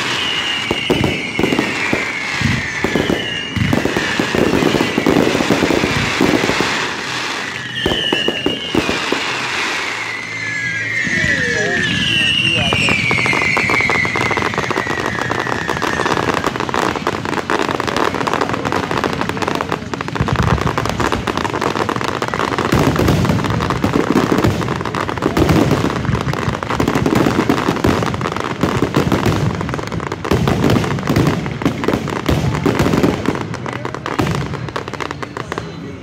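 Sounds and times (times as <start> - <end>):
firework booms: 0.0 - 35.9
falling firework whistle: 0.0 - 36.0
fireworks crackling: 0.0 - 36.0.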